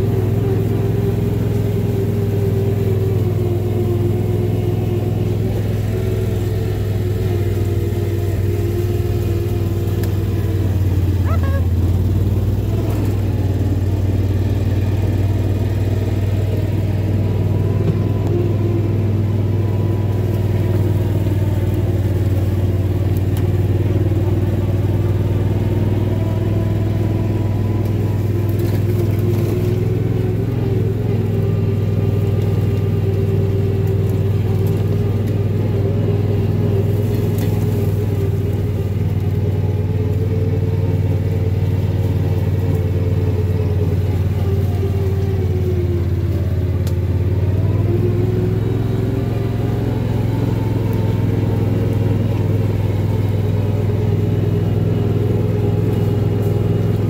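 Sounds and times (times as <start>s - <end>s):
vehicle engine running: 0.0s - 57.0s.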